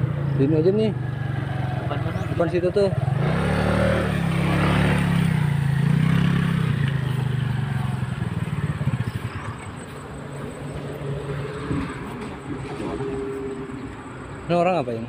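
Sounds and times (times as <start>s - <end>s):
motor scooter engine: 0.0s - 13.9s.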